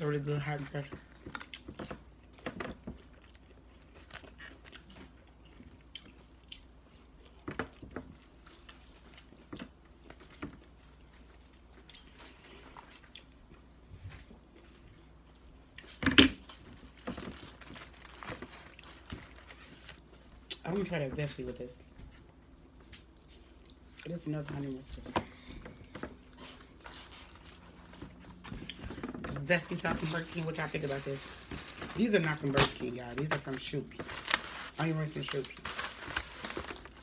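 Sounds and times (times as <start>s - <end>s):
chewing crunchy onion rings: 0.6s - 20.7s.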